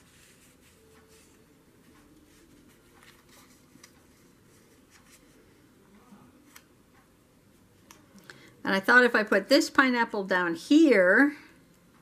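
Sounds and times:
paper rustling: 2.3 - 5.4.

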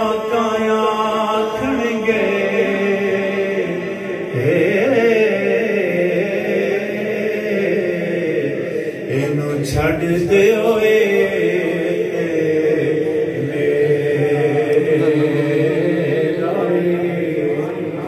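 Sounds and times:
man chanting: 0.0 - 18.0.

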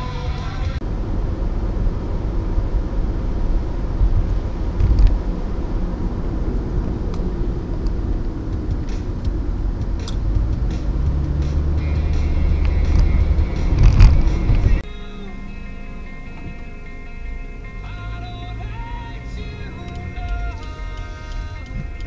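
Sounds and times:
music: 0.0 - 0.8, 8.7 - 22.0
car road rumble and tyre noise: 0.0 - 22.0.

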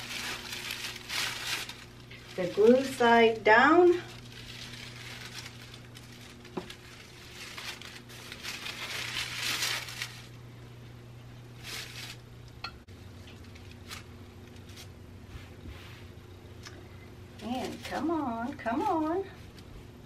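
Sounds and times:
fabric interfacing rustling: 0.0 - 10.4.

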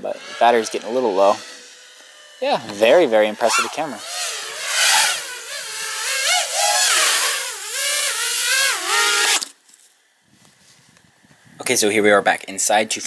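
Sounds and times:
quadcopter motors whining: 0.0 - 9.6.

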